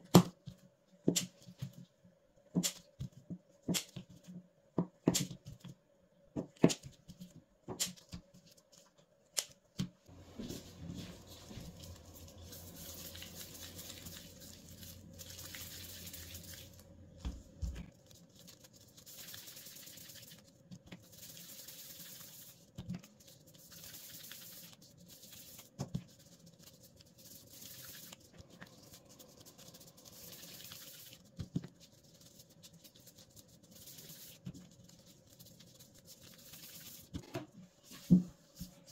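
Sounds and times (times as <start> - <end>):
scissors snipping dough: 3.7 - 4.0
hands rubbing dough: 10.1 - 37.2.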